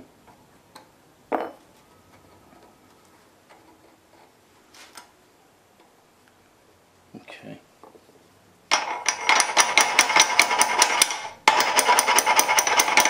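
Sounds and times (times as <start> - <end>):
wrench and sprocket rattling: 8.7 - 13.0.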